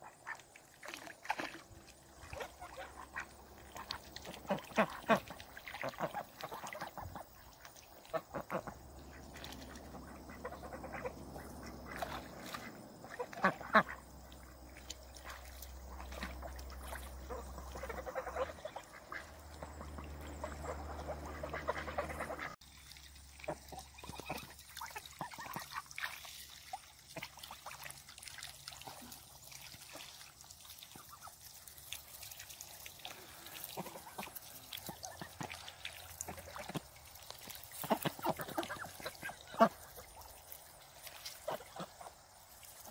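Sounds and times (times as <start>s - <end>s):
ducks quacking: 2.1s - 22.6s, 23.4s - 26.5s, 33.1s - 42.9s.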